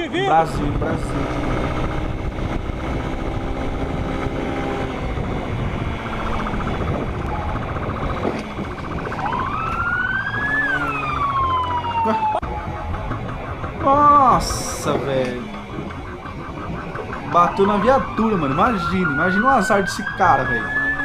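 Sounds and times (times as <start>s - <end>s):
motorcycle engine running: 0.0s - 21.0s
road and wind noise: 0.0s - 21.0s
police siren wailing: 1.1s - 21.0s.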